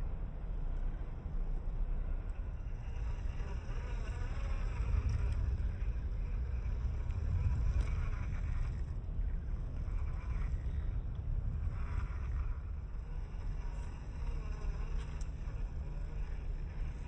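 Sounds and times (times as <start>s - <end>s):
steady low rumble: 0.0s - 17.0s
small electric motor whining: 11.7s - 17.0s
faint clicks: 14.9s - 15.5s.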